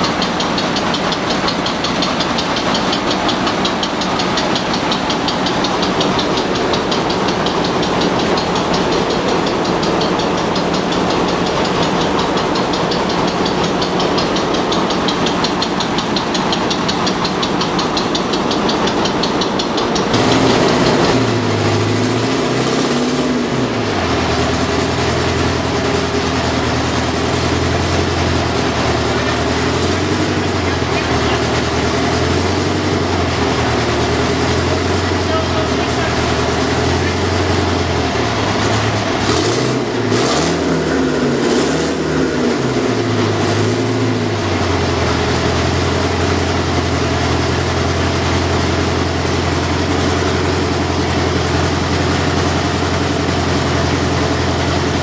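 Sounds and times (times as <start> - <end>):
deep diesel engine running: 0.0 - 55.0
engine with fast even beat: 0.0 - 55.0.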